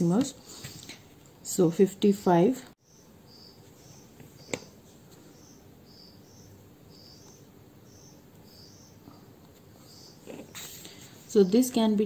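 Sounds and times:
faint high-pitched chirping: 2.8s - 10.7s.

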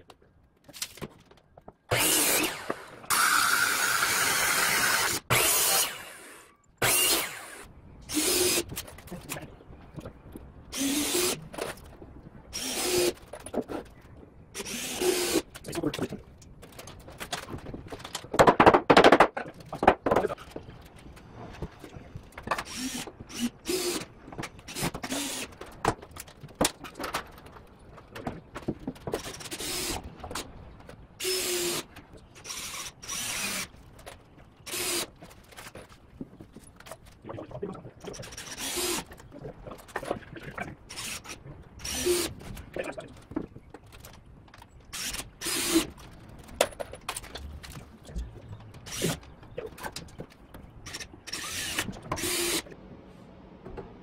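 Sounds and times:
cordless drill driving screws: 1.9s - 8.6s, 10.7s - 11.4s, 12.5s - 13.2s, 22.6s - 24.1s, 24.7s - 25.6s, 29.2s - 30.0s, 31.2s - 33.7s, 34.7s - 35.1s, 38.3s - 39.1s, 40.9s - 42.3s, 44.9s - 45.9s, 50.9s - 52.7s.

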